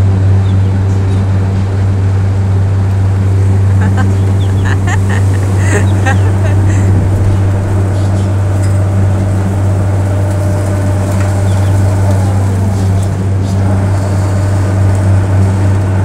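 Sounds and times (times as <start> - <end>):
low machinery hum: 0.0 - 16.0.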